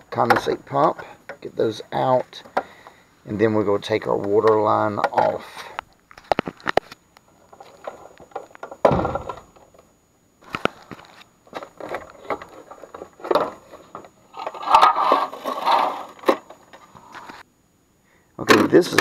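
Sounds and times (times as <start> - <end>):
heavy thump: 8.8 - 9.5
plastic handling clicks and scrapes: 10.4 - 17.4.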